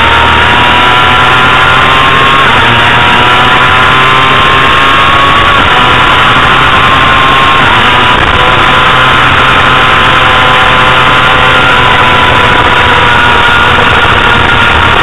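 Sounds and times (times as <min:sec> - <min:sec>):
motorcycle engine at high revs: 0:00.0 - 0:15.0
wind rush: 0:11.6 - 0:15.0.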